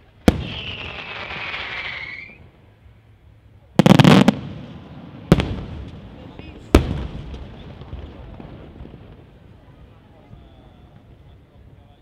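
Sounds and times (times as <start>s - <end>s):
firework bangs: 0.2s - 2.4s, 3.8s - 11.1s
firework hiss with falling whistle: 0.3s - 2.5s.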